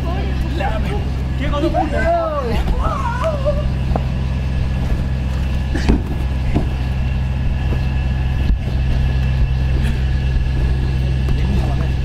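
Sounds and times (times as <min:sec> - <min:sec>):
low mechanical hum: 0:00.0 - 0:12.0
thuds of landing on trampoline: 0:02.5 - 0:11.6.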